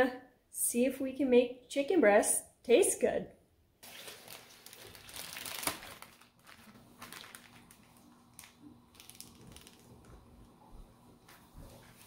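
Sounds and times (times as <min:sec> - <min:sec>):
plastic bag crinkling: 0:03.8 - 0:10.4.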